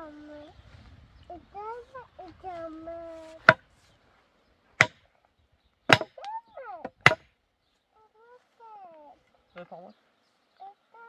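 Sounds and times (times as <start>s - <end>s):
metal tool knocking wooden post: 4.8s - 5.0s, 5.9s - 7.3s.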